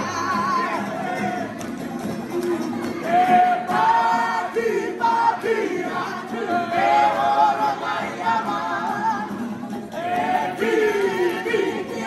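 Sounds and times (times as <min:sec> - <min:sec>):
acoustic guitar: 0:00.0 - 0:12.0
strummed ukuleles: 0:00.0 - 0:12.0
men singing together: 0:03.1 - 0:12.0.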